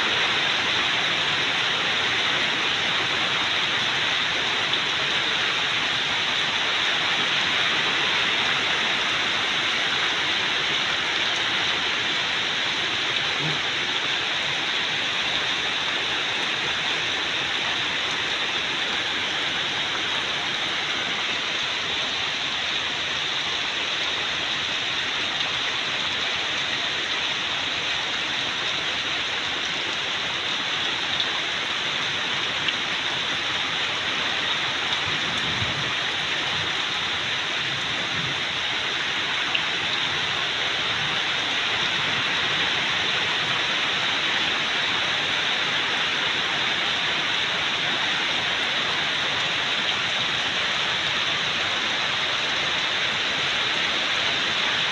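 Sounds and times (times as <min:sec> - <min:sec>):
heavy rain splashing into water: 0:00.0 - 0:54.9.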